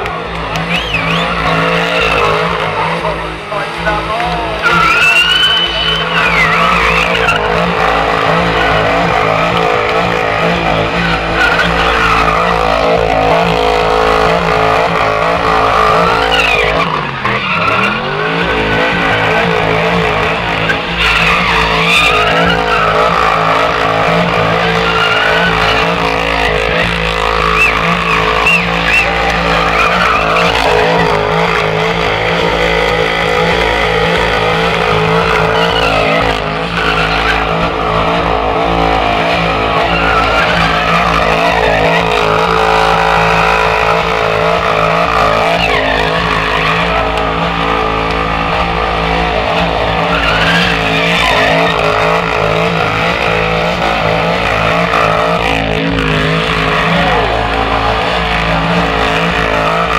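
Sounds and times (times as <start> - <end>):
car engine revving: 0.0 - 59.9
tyres squealing: 0.0 - 59.9.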